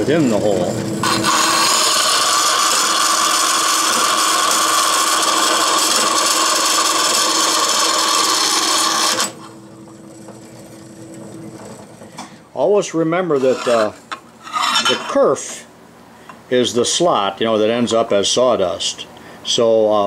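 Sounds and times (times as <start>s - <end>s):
bandsaw cutting metal: 0.0s - 9.5s, 13.3s - 15.1s.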